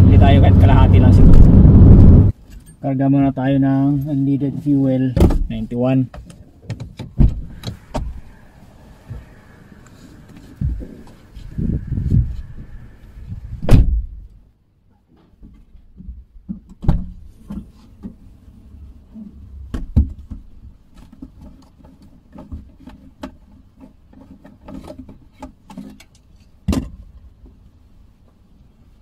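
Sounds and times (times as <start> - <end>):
heavy thump: 7.2 - 8.3, 10.6 - 11.2, 13.6 - 14.2.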